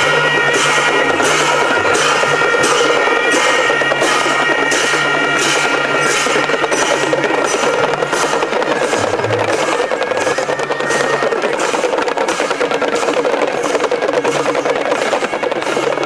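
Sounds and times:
clashing cymbals: 0:00.0 - 0:16.0
drums: 0:00.0 - 0:16.0
held ringing tones: 0:00.0 - 0:16.0.

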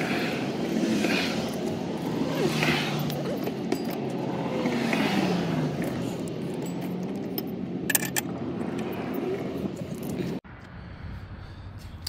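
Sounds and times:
metallic clinks of tools: 0:02.9 - 0:04.5, 0:05.7 - 0:09.3.

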